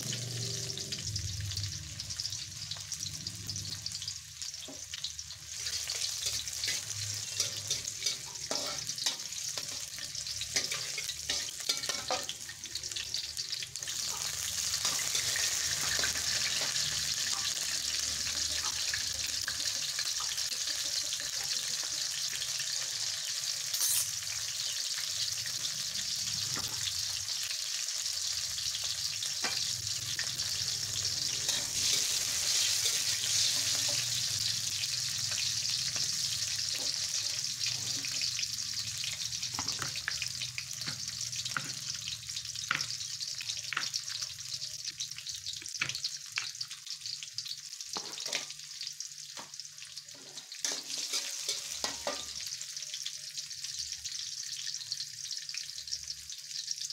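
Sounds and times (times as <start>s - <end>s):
oil sizzling in a wok: 0.0s - 56.9s
metal spatula scraping a pan: 5.5s - 21.5s, 23.7s - 24.4s, 29.2s - 38.4s, 50.0s - 52.5s.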